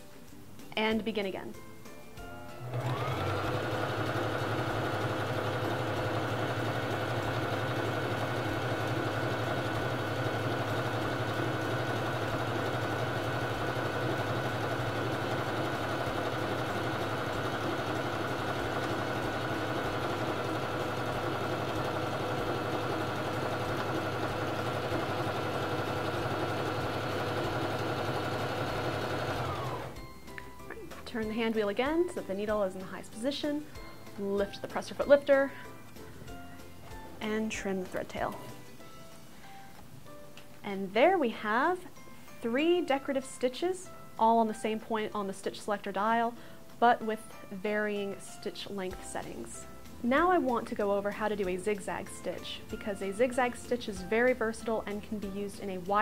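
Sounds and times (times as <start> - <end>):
sewing machine running: 2.6 - 30.0.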